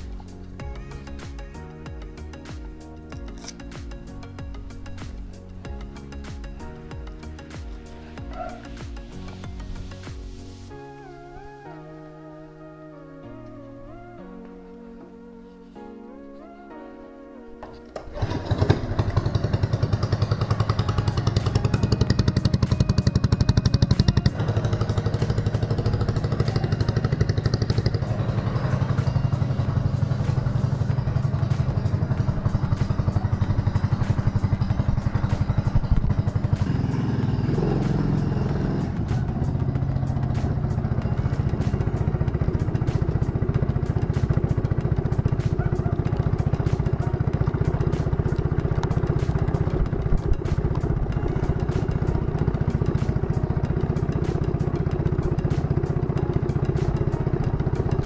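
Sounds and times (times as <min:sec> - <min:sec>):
lawn mower engine running: 0:17.7 - 0:58.0.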